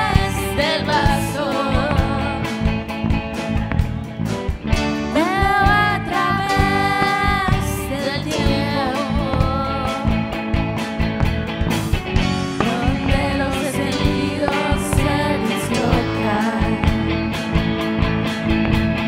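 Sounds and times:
person singing: 0:00.0 - 0:02.7, 0:05.1 - 0:10.3, 0:12.5 - 0:17.1
live rock band playing: 0:00.0 - 0:19.0.

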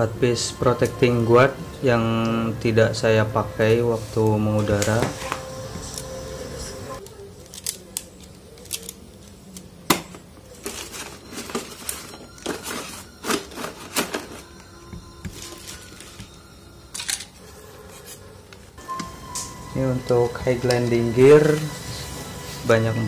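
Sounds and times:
hard plastic parts clicking: 0:07.0 - 0:14.4.

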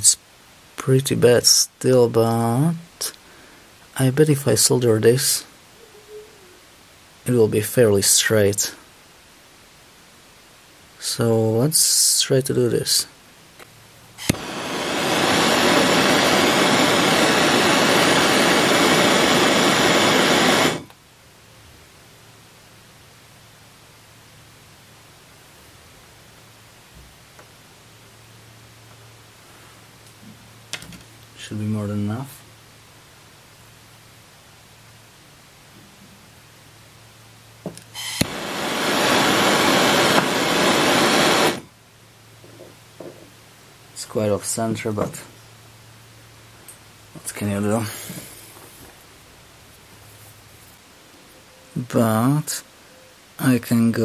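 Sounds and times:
gas torch flame rushing: 0:14.2 - 0:21.0, 0:37.9 - 0:41.7
gas torch ignition click: 0:14.2 - 0:21.0, 0:37.7 - 0:41.6.

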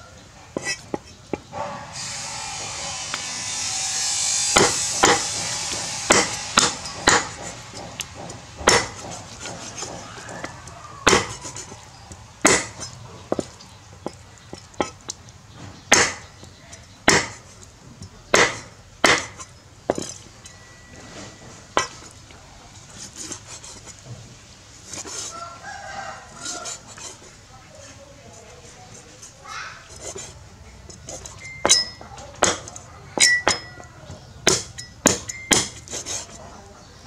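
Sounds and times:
cleaver chopping on wooden block: 0:04.6 - 0:15.2, 0:15.9 - 0:17.6, 0:18.3 - 0:20.3, 0:29.9 - 0:36.4.

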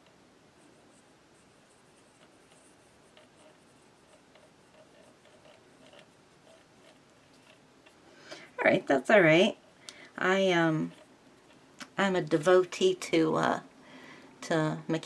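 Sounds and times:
pencil scratching on paper: 0:00.6 - 0:07.6.

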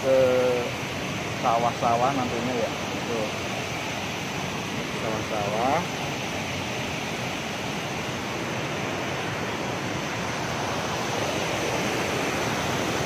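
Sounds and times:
river water rushing over weir: 0:00.0 - 0:13.0.

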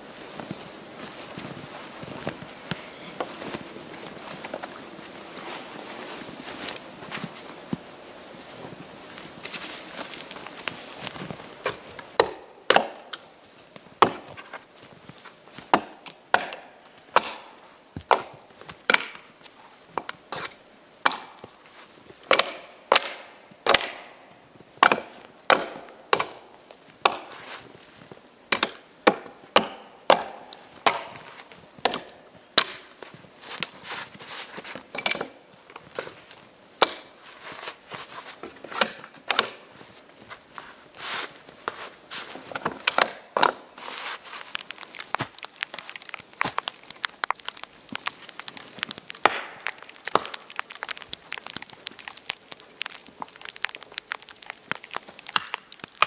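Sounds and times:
hatchet chopping wood: 0:11.6 - 0:13.2, 0:14.0 - 0:14.3, 0:15.7 - 0:19.2, 0:21.0 - 0:21.4, 0:22.3 - 0:24.2, 0:24.8 - 0:27.3, 0:28.5 - 0:31.2, 0:31.8 - 0:32.8, 0:36.8 - 0:37.2, 0:42.6 - 0:43.7, 0:49.2 - 0:50.6.

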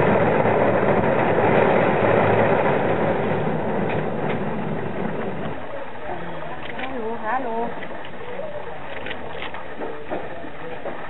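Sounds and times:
threshing machine running: 0:00.0 - 0:05.7.

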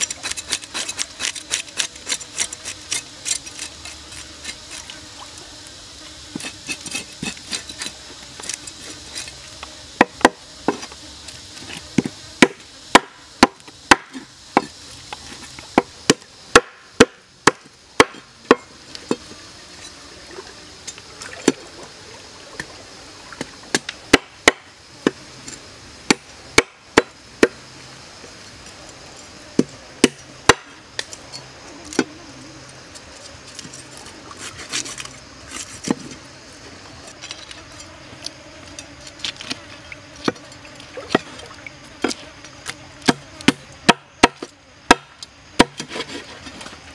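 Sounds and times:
knife scraping fish scales: 0:00.0 - 0:05.0, 0:06.3 - 0:09.4, 0:33.5 - 0:36.0.

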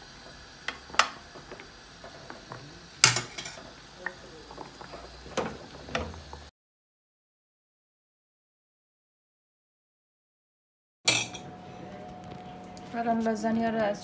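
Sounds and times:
wooden spoon stirring in pan: 0:00.0 - 0:06.5.

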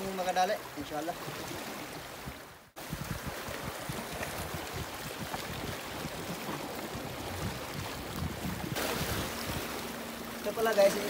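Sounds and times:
sea waves washing on shore: 0:00.0 - 0:11.0
wind buffeting microphone: 0:02.1 - 0:10.5.

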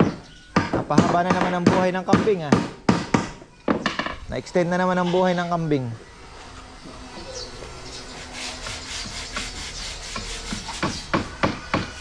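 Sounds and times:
hand tool rasping on wood: 0:07.9 - 0:12.0.

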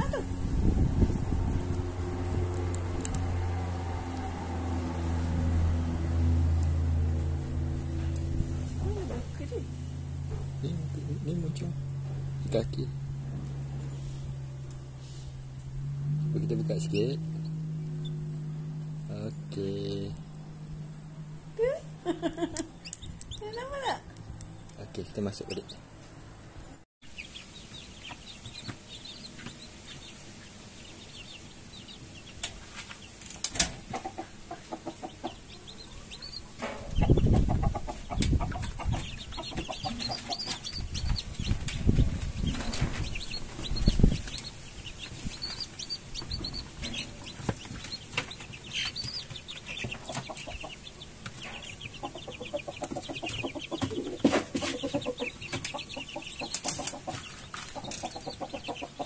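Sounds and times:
chickens clucking and peeping: 0:16.3 - 0:18.4, 0:24.8 - 0:25.8, 0:27.0 - 0:59.0
rustling and thumps: 0:38.3 - 0:44.4, 0:52.9 - 0:54.9.

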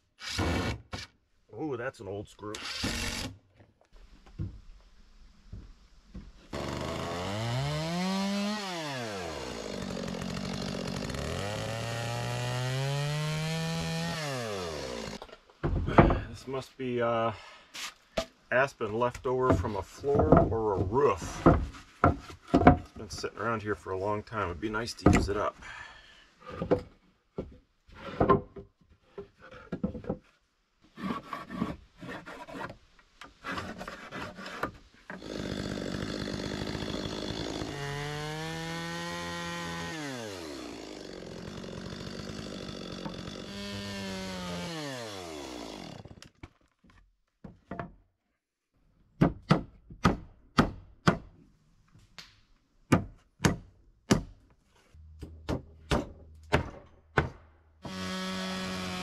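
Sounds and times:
chainsaw cutting boards: 0:00.1 - 0:01.2, 0:02.5 - 0:03.4, 0:05.5 - 0:16.3, 0:19.2 - 0:25.6, 0:30.9 - 0:46.6, 0:55.2 - 0:59.0
wooden boards clattering: 0:15.2 - 0:16.3, 0:19.5 - 0:23.2.

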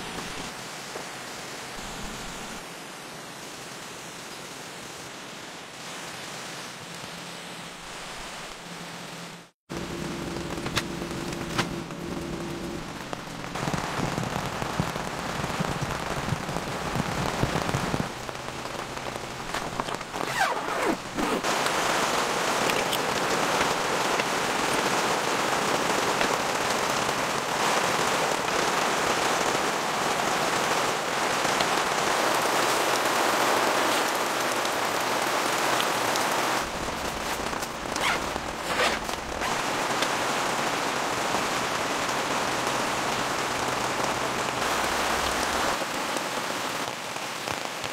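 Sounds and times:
rain falling on a tent: 0:00.0 - 0:47.9.

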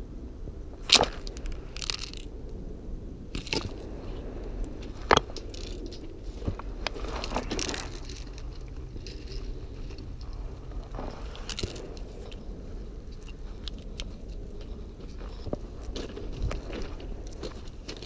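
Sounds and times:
low rumble: 0:00.0 - 0:18.0
footsteps on gravel: 0:04.8 - 0:12.6.

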